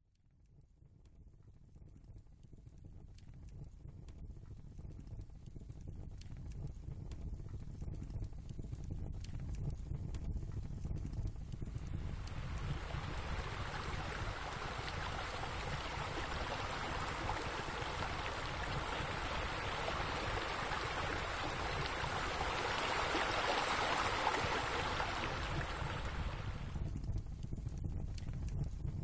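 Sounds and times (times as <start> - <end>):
fountain water splashing: 11.9 - 26.8.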